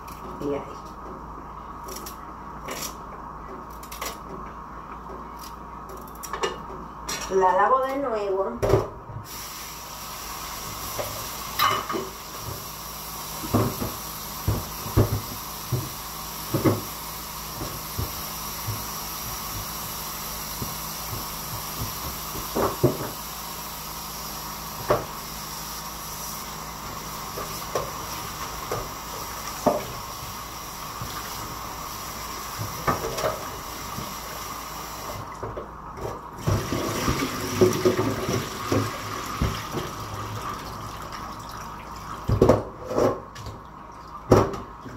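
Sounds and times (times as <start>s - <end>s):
tap running into a sink: 13.4s - 23.2s, 27.3s - 30.1s, 35.1s - 41.3s, 42.2s - 43.6s, 44.3s - 44.7s.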